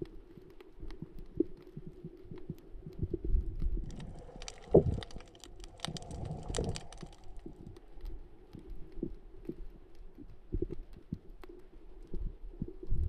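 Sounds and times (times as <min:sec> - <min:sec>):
underwater thumps and rumble: 0:00.9 - 0:07.7.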